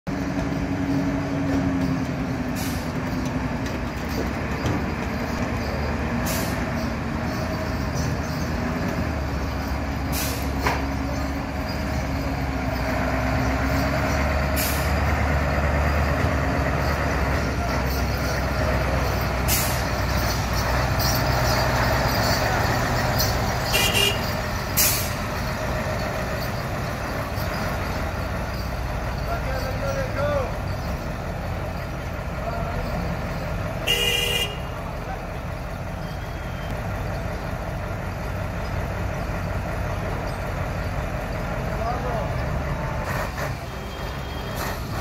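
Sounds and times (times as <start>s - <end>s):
truck diesel engine running: 0.1s - 45.0s
air brake hiss: 2.5s - 3.0s, 6.2s - 6.7s, 10.1s - 10.7s, 14.5s - 15.0s, 19.4s - 20.0s, 24.8s - 25.3s.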